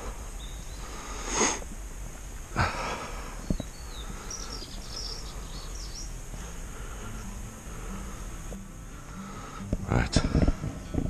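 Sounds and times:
high bird chirps: 0:00.4 - 0:01.0, 0:03.4 - 0:06.2
breathy sniffs: 0:00.9 - 0:01.6
steady low rumble: 0:01.7 - 0:11.0.

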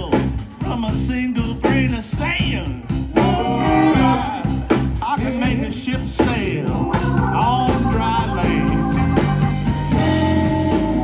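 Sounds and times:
drum kit: 0:00.0 - 0:11.0
electric guitar: 0:00.0 - 0:11.0
man singing: 0:00.0 - 0:11.0.

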